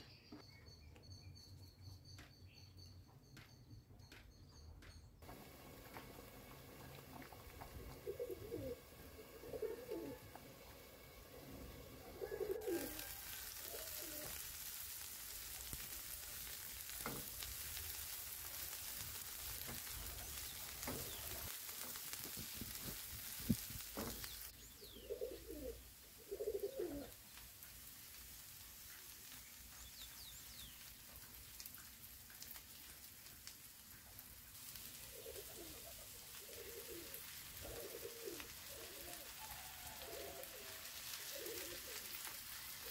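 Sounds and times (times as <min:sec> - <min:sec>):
onions sizzling in oil: 0:05.2 - 0:42.9
dove cooing: 0:06.9 - 0:14.4, 0:24.9 - 0:27.2, 0:35.0 - 0:42.2.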